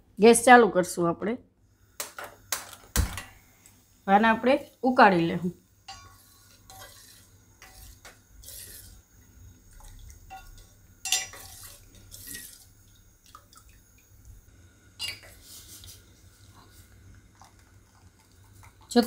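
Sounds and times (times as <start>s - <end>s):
spoon clinking on pot: 5.9s - 7.0s, 10.2s - 11.7s
metal spoon scraping a pot: 5.9s - 9.0s, 10.3s - 12.7s.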